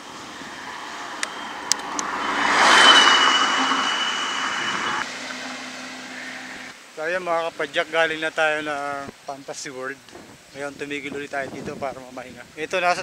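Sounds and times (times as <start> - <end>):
motor vehicle passing: 0.0 - 7.0
steady high whine: 0.0 - 7.9.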